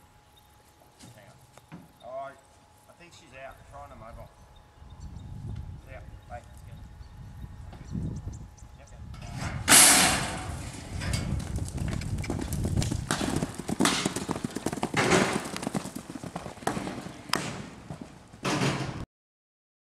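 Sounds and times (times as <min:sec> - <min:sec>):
loud bang: 0:09.4 - 0:10.8
horses galloping on grass: 0:10.1 - 0:19.0.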